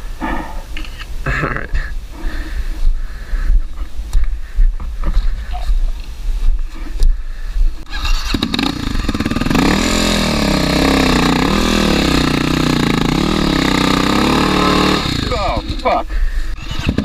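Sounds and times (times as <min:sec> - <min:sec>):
motorcycle engine revving: 0:07.8 - 0:16.0, 0:16.6 - 0:17.0.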